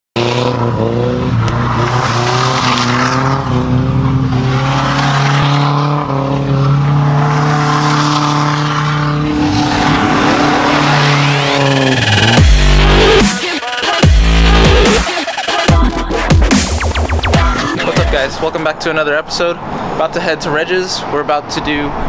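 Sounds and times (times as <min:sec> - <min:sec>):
car engine under load: 0:00.2 - 0:13.2
tires squealing: 0:00.2 - 0:15.4.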